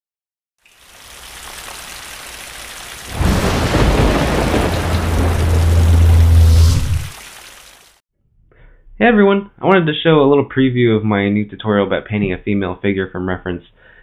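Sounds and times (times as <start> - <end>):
rain hiss: 0.6 - 8.0
deep rumble: 3.1 - 7.2
thunder crash: 3.1 - 7.2.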